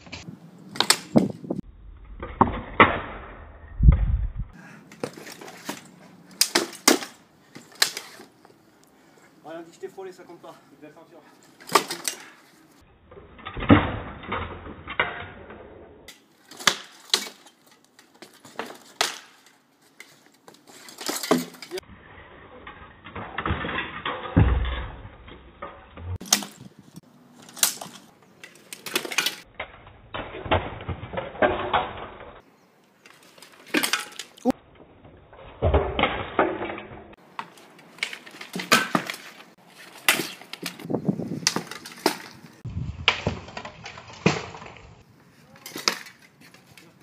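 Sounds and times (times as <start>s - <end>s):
slow-motion deep hits: 1.6s - 4.6s
weapons striking wooden shields: 38.4s - 39.4s.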